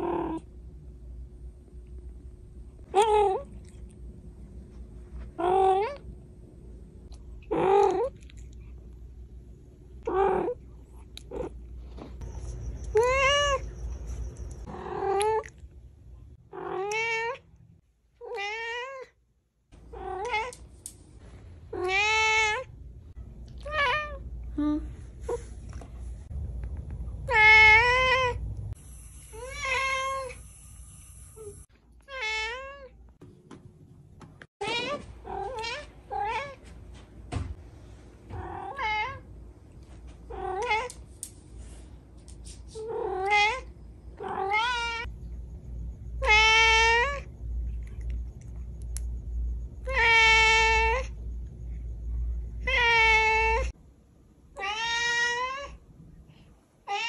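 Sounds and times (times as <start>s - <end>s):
cat meowing: 54.6s - 55.8s.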